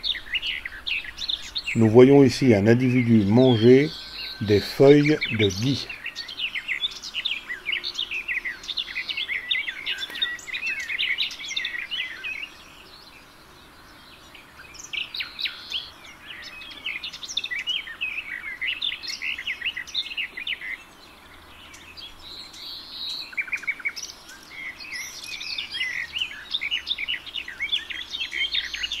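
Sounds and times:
songbirds chirping: 0:00.0 - 0:29.0.

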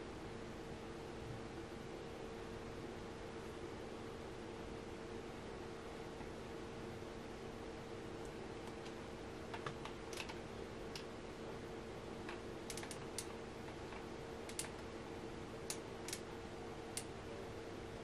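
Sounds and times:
light clicks: 0:14.5 - 0:14.8.

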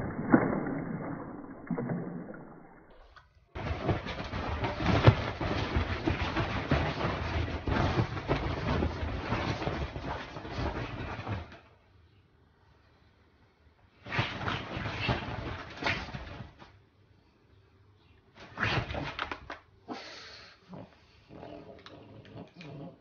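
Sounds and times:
dog scuffling with toy on bed: 0:03.6 - 0:11.6, 0:14.0 - 0:16.7
rustling bedding: 0:03.6 - 0:11.7, 0:14.0 - 0:16.8.

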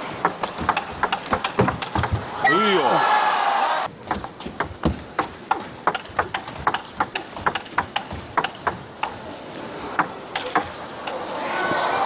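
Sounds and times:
ball bouncing on table: 0:00.2 - 0:02.2, 0:04.0 - 0:09.2
ping pong ball clicking off paddles: 0:00.2 - 0:02.2, 0:04.0 - 0:09.2, 0:10.0 - 0:11.2.

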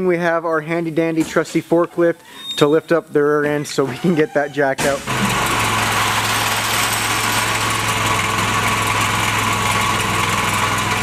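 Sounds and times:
forklift engine humming: 0:03.6 - 0:11.0.

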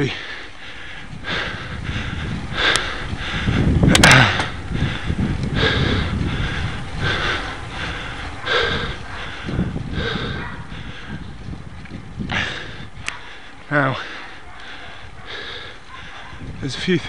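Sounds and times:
cyclist breathing hard: 0:00.0 - 0:17.0
steady low rumble: 0:00.2 - 0:16.8
sharp clicks: 0:02.7 - 0:02.9, 0:13.0 - 0:13.2.

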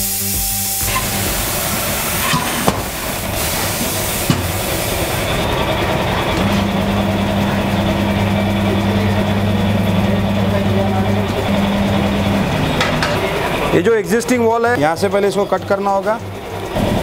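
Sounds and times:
steady hiss: 0:00.0 - 0:05.6
machine motor humming: 0:00.0 - 0:17.0
wheel knocking down on machine: 0:00.8 - 0:13.7.

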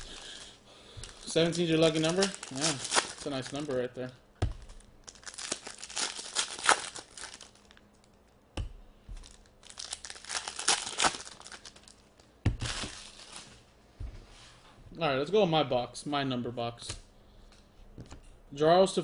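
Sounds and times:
trading cards rustling: 0:00.0 - 0:03.9, 0:04.6 - 0:07.8, 0:09.2 - 0:12.0.

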